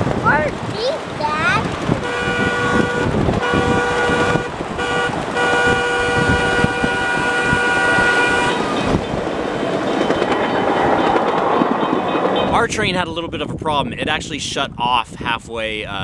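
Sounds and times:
train running rumble: 0:00.0 - 0:13.6
train horn blasts: 0:02.0 - 0:09.0.

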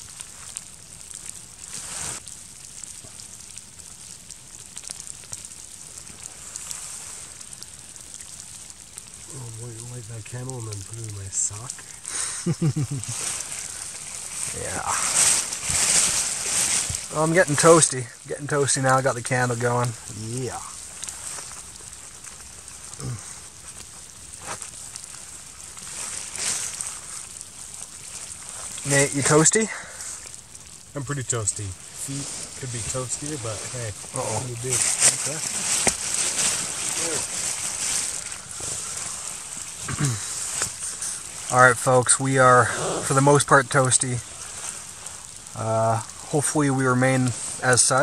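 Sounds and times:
faint ticks and crackles: 0:00.0 - 0:48.0
steady hiss: 0:00.0 - 0:48.0
fabric rustling: 0:13.1 - 0:17.1, 0:32.0 - 0:39.6.

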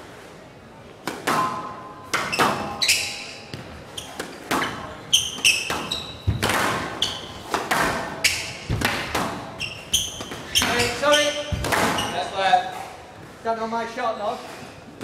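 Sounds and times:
squash ball cracks on walls: 0:01.0 - 0:02.8, 0:03.5 - 0:12.6
shoes squeaking on court floor: 0:02.2 - 0:15.0.

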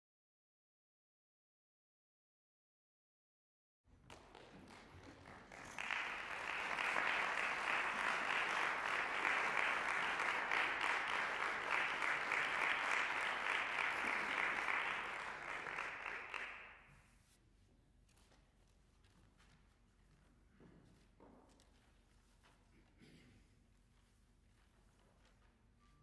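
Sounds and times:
audience applauding: 0:04.0 - 0:16.8.

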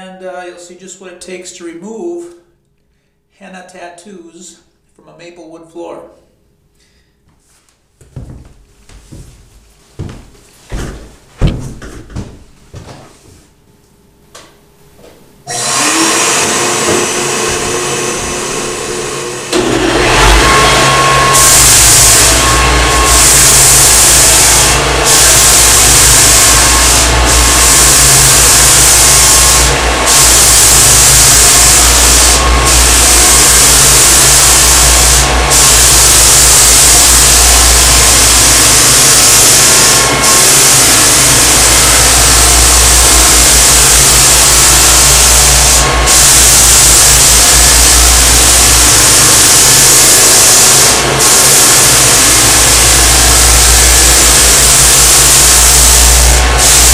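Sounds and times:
vacuum running: 0:08.0 - 0:13.4, 0:14.3 - 0:56.9
floor sander: 0:15.5 - 0:56.9.

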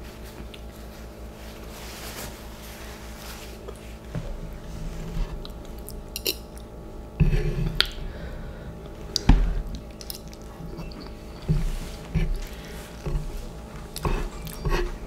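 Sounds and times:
person chewing noodles: 0:05.4 - 0:06.8, 0:07.6 - 0:15.0.

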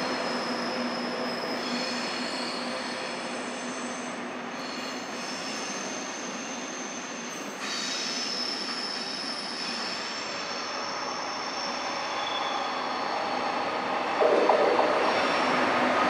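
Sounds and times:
train wheels squealing on rails: 0:00.0 - 0:14.2, 0:14.9 - 0:16.0
train rolling rumble: 0:13.1 - 0:16.0.

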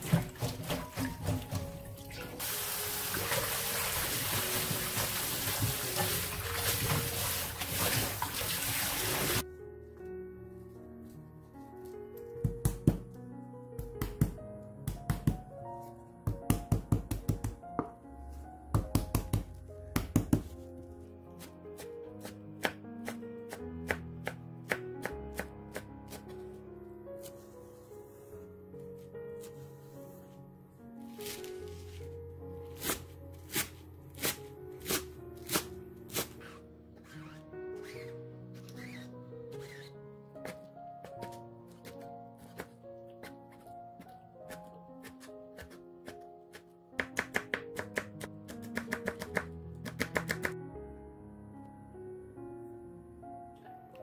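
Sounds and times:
soft background music: 0:00.0 - 0:54.0
kitchen tap running: 0:02.2 - 0:09.4
knife chopping on wooden board: 0:18.8 - 0:20.5, 0:40.4 - 0:50.6.

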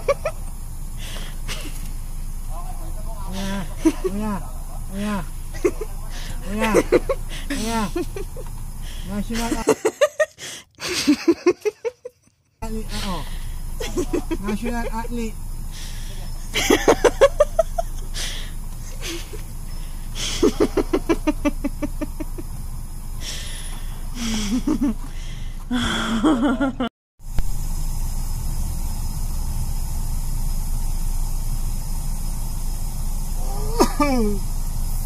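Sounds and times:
idling car hum: 0:00.0 - 0:35.0
muffled stifled laughter: 0:03.3 - 0:08.5, 0:13.8 - 0:15.0, 0:16.5 - 0:18.2, 0:20.2 - 0:22.5, 0:25.8 - 0:26.9.

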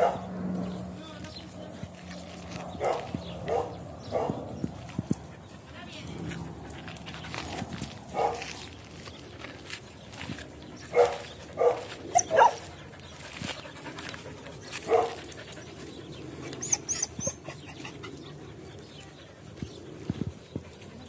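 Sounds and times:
dog barking: 0:00.0 - 0:00.3, 0:02.8 - 0:04.4, 0:08.2 - 0:08.5, 0:10.9 - 0:12.6, 0:14.9 - 0:15.2.

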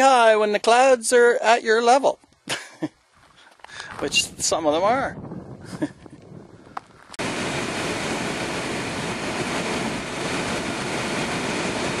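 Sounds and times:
road and wind noise from vehicle: 0:03.1 - 0:12.0.

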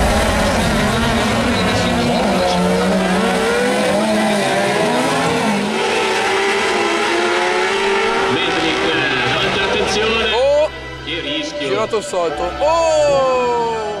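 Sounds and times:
buggy engines revving: 0:00.0 - 0:10.9.

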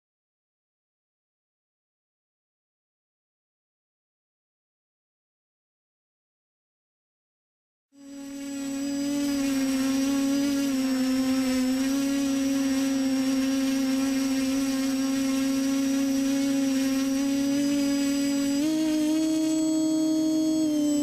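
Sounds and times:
quadcopter motors humming and whining: 0:08.0 - 0:21.0.

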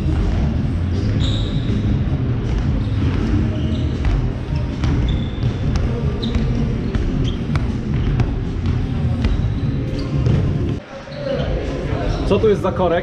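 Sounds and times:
shoes squeaking on floor: 0:01.0 - 0:11.6
balls bouncing on wooden floor: 0:01.7 - 0:09.6.

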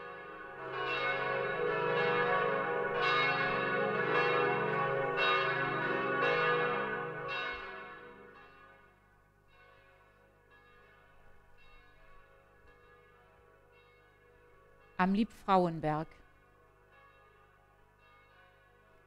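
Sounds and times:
church bells ringing: 0:00.0 - 0:15.0, 0:16.7 - 0:19.0.

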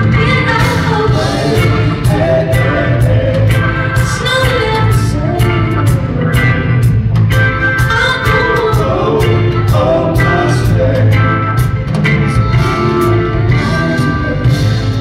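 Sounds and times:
woman singing: 0:00.0 - 0:06.7, 0:07.8 - 0:10.8
drum kit: 0:00.0 - 0:15.0
electric guitar: 0:00.0 - 0:15.0
low bass: 0:00.0 - 0:15.0.

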